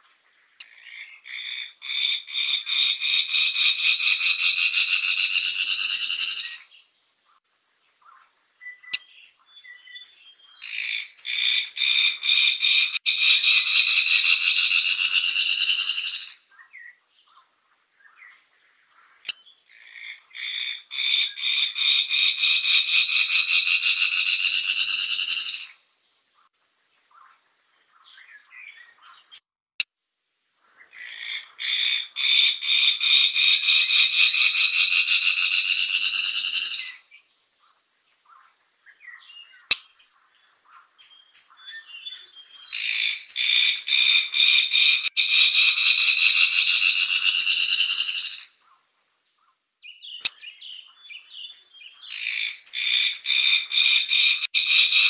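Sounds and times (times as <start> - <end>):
bird rapid pulsing trills: 33.2 - 36.9, 44.2 - 48.4, 53.2 - 55.0.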